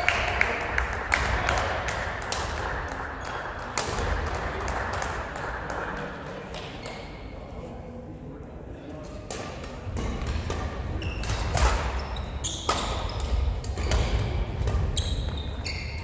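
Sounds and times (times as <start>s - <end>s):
racket hitting shuttlecock: 0.4s - 6.8s, 9.2s - 15.6s
shoes squeaking on wooden floor: 14.9s - 16.0s.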